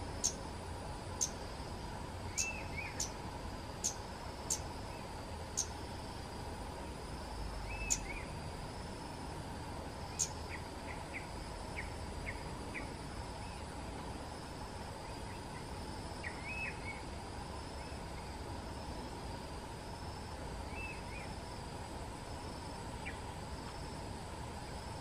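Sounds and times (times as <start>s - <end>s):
high insect drone: 0.0s - 25.0s
bird calling: 2.3s - 3.1s.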